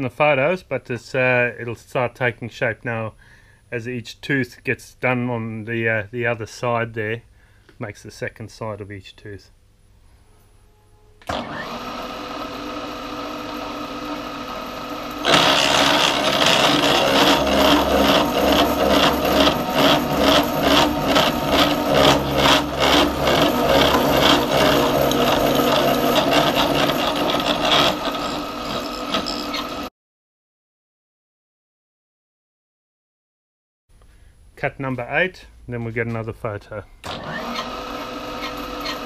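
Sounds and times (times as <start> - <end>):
cutter milling metal: 11.2 - 29.9, 37.1 - 39.0
milling machine spindle running: 11.3 - 29.9, 37.1 - 39.0.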